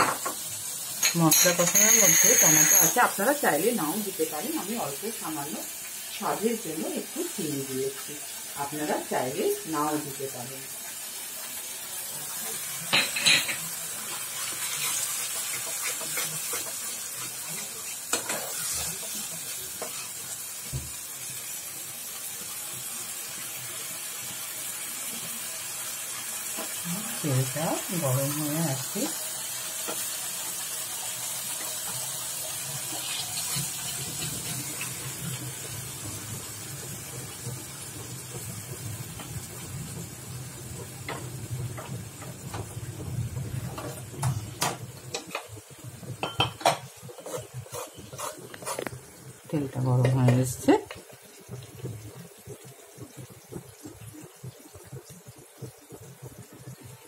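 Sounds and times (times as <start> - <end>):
utensils clinking and scraping pans: 0.0 - 3.2, 12.5 - 20.2, 46.2 - 49.0
masala sizzling in oil: 0.0 - 57.0.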